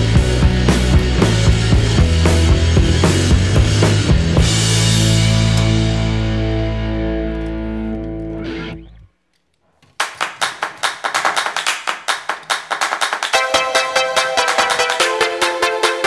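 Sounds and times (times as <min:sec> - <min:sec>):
music with quick steady beat: 0:00.0 - 0:05.9, 0:12.7 - 0:16.0
electric guitar chord: 0:00.0 - 0:09.1.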